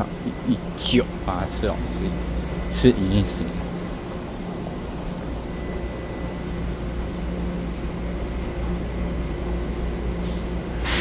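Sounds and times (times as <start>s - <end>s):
train equipment humming: 0.0s - 11.0s
air hiss: 10.2s - 11.0s.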